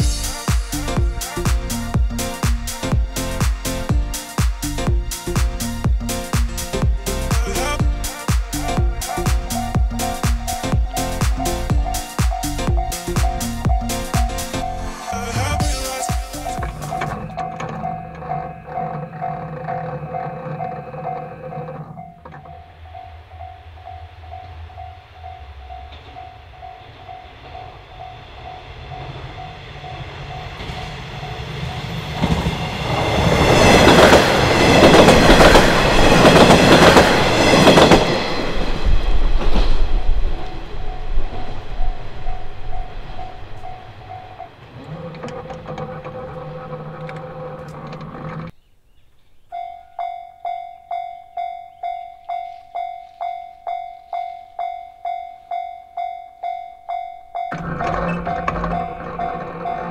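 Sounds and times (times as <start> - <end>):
diesel train passing: 0.0 - 48.6, 49.8 - 59.9
level crossing bell dinging: 9.5 - 30.6, 40.4 - 45.7, 49.5 - 59.9.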